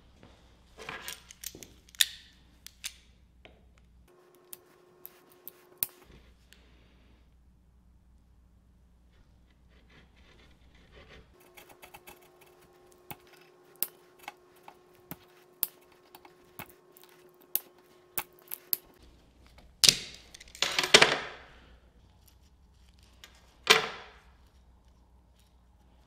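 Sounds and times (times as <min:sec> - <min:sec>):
pliers clicking on metal: 0:01.0 - 0:03.1, 0:13.1 - 0:18.9.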